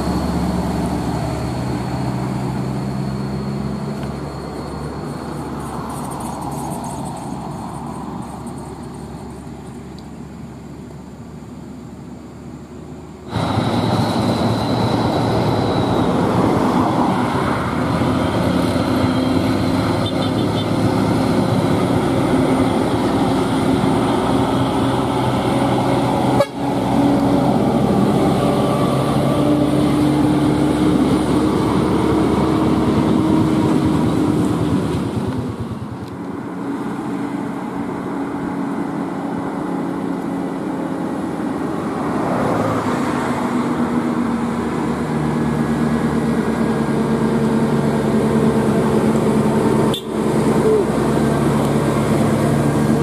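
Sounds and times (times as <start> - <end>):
truck diesel engines passing: 0.0 - 53.0
horn long note: 26.3 - 26.8.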